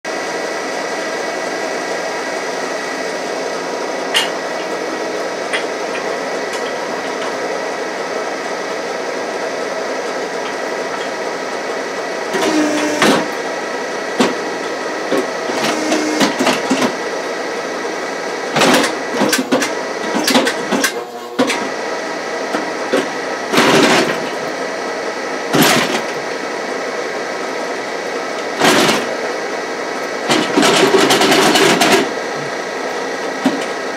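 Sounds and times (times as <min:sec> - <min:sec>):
machine mechanical hum: 0:00.1 - 0:33.9
hydraulic valve bursts with whine: 0:12.3 - 0:13.4, 0:15.4 - 0:16.4.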